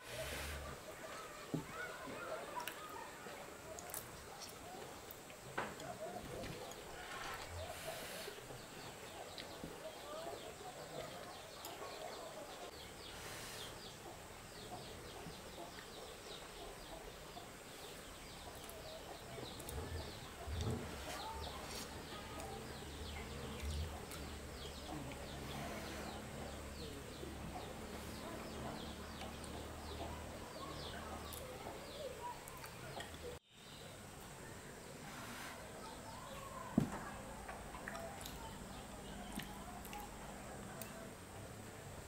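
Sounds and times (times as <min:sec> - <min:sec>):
chickens clucking: 0:00.0 - 0:33.4
small birds chirping: 0:00.0 - 0:42.0.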